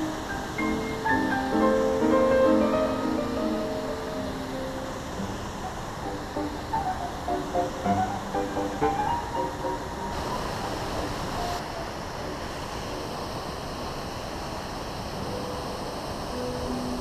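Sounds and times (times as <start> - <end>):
faint guitar music: 0.0 - 11.3, 15.2 - 17.0
mountain stream rushing: 0.0 - 17.0.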